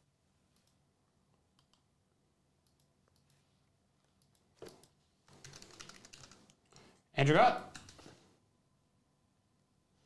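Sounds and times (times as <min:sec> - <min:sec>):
computer keyboard typing: 0:04.2 - 0:06.9, 0:07.6 - 0:08.2.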